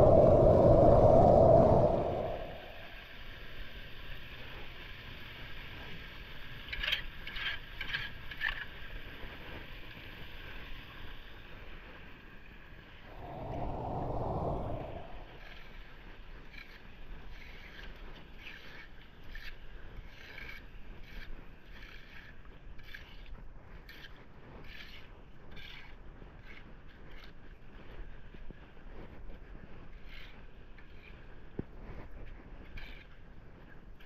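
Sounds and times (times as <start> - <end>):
low rush: 0.0 - 3.2, 13.1 - 15.5.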